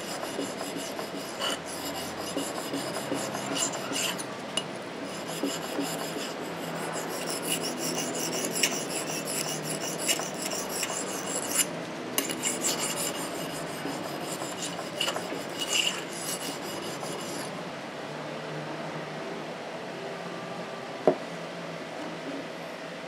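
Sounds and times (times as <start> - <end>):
blade scraping on whetstone: 0.0 - 17.5.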